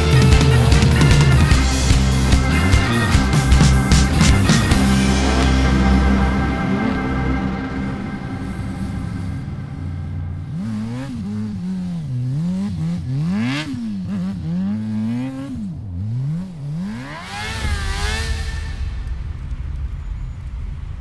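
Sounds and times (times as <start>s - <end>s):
vehicle engine revving: 0.0s - 19.9s
rush of noise with rising whine: 4.2s - 13.2s, 15.8s - 21.0s.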